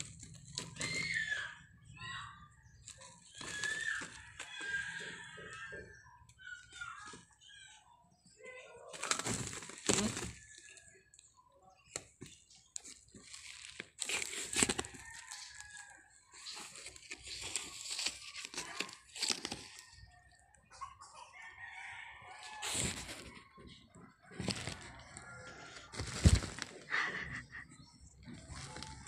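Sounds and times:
plastic tarpaulin crinkling: 2.8s - 5.0s, 8.9s - 10.6s, 12.6s - 20.2s, 22.5s - 23.3s, 24.4s - 27.6s, 28.2s - 29.0s.

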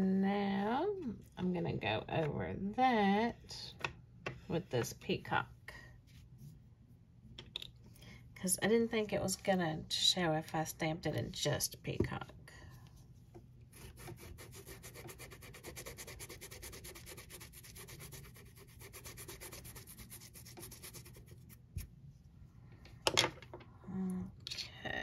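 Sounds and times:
brush scrubbing silicone mat: 13.7s - 21.9s.

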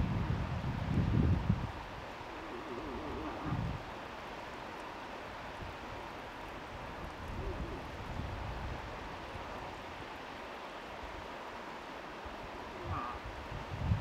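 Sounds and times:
wind rumble on microphone: 0.0s - 4.0s, 6.6s - 10.0s, 12.3s - 14.0s
moose bleating call: 12.6s - 13.3s.

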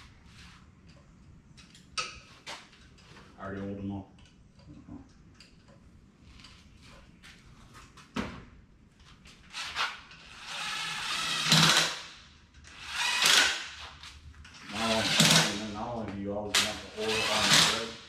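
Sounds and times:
cordless drill running: 10.3s - 12.0s, 12.7s - 13.6s, 17.0s - 18.0s.

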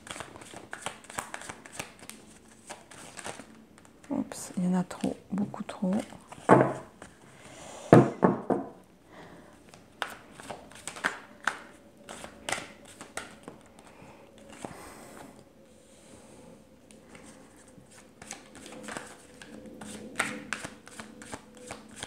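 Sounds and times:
cards rustling: 0.0s - 4.2s, 5.0s - 7.2s, 9.6s - 14.8s, 17.2s - 22.0s.

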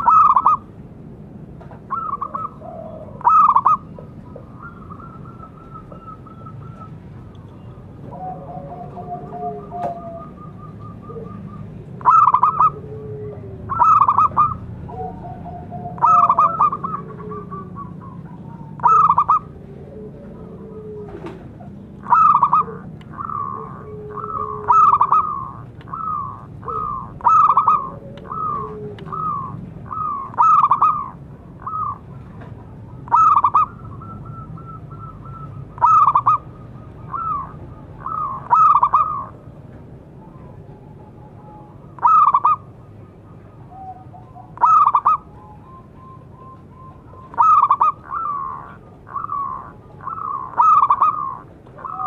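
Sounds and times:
dove cooing: 0.0s - 0.7s, 1.9s - 52.0s
soft low coos: 12.6s - 13.9s.

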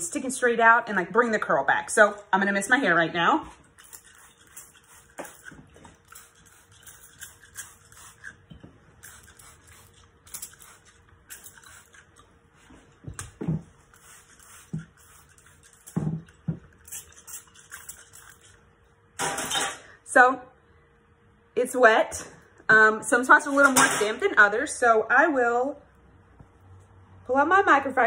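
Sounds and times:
spray bottle misting: 3.8s - 8.4s, 9.0s - 12.0s, 13.7s - 16.0s.

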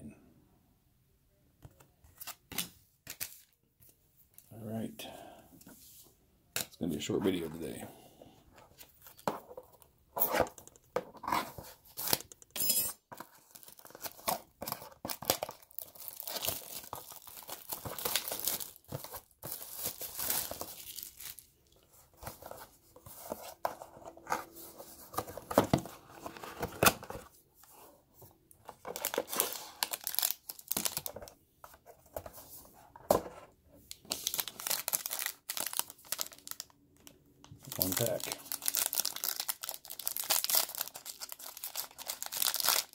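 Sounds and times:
plastic wrap tearing and crinkling: 13.2s - 21.5s, 28.9s - 31.2s, 34.0s - 36.7s, 37.6s - 42.9s.

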